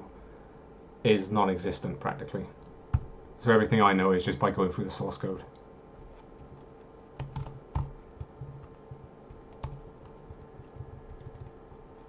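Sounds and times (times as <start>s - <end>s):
typing on computer keyboard: 6.4s - 12.0s.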